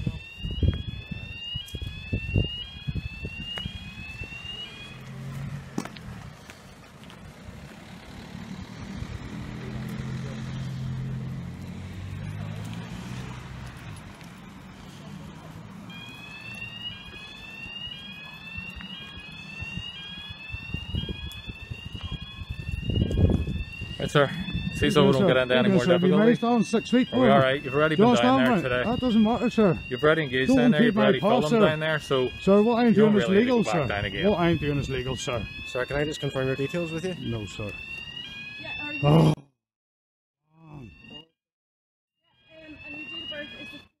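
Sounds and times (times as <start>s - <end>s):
high electronic alarm tone: 0.0s - 5.4s, 15.7s - 39.5s, 40.6s - 41.4s, 42.3s - 43.9s
footsteps: 3.4s - 8.1s, 12.0s - 17.7s.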